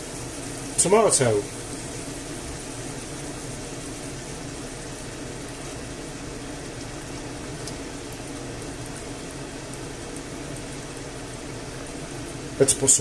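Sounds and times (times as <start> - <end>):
frying pan bubbling hiss: 0.0 - 13.0.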